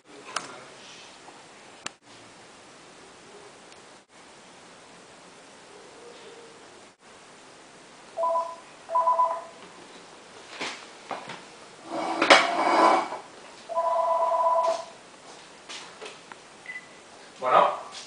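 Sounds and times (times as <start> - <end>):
electronic doorbell buzzer: 8.2 - 9.5, 13.7 - 14.9
clatter and shuffle of movement: 9.6 - 13.7.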